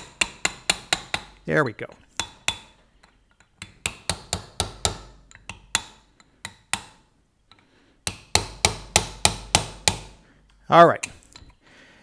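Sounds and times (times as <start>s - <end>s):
hammer tapping on metal punch: 0.0s - 1.4s, 2.2s - 10.2s.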